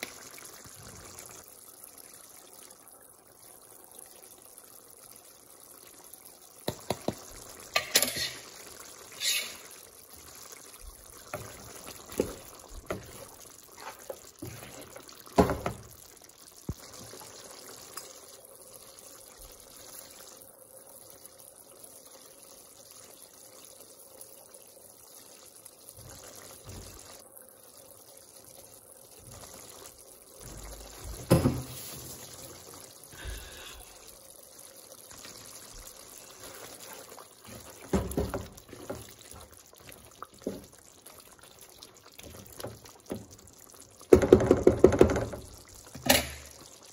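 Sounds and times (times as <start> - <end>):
curry bubbling in a pan: 0.0 - 46.9
spoon knocking in pan: 6.6 - 8.5, 44.1 - 46.5.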